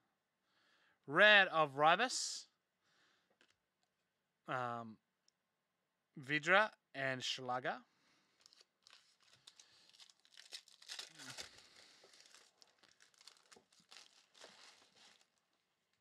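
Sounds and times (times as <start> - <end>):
foil wrapper tearing and crinkling: 8.4 - 15.5.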